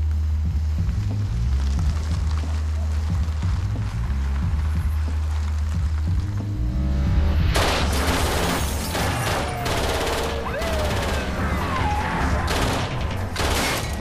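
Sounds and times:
automatic gunfire bursts: 7.6s - 11.5s.

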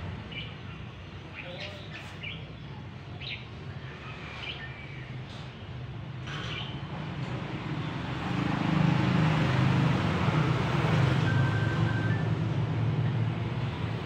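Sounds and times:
bulbuls singing: 0.2s - 5.5s.

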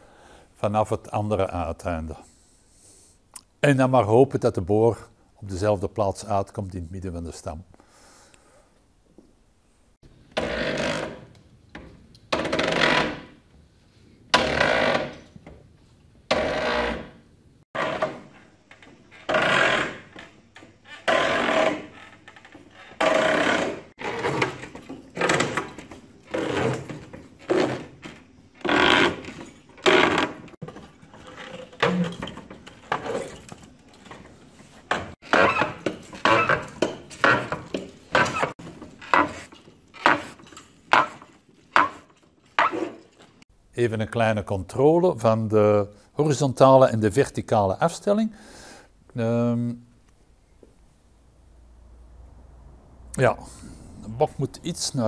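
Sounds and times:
auger scraping into wood: 21.0s - 33.6s, 34.3s - 43.1s.

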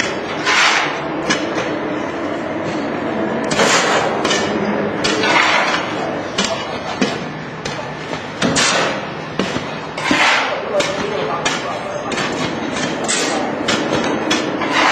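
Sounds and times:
loud mechanical knocks and bangs: 0.0s - 2.0s, 2.6s - 14.9s
extrusion machine running: 0.0s - 14.9s.

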